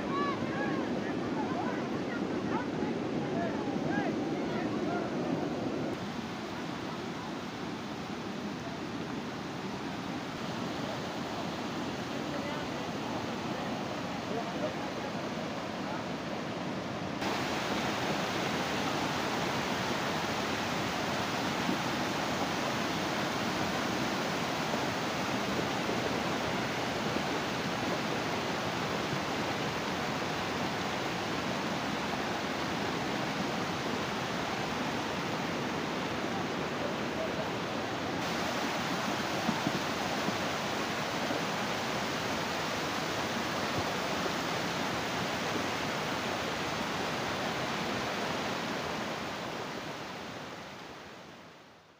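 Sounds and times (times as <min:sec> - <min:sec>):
water rushing over stones: 0:17.2 - 0:51.3.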